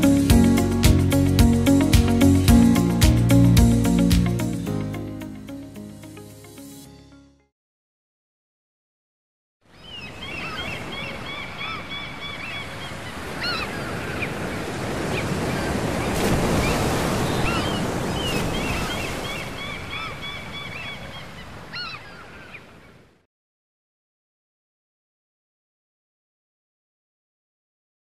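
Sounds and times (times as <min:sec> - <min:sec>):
breaking surf: 0:12.9 - 0:20.0.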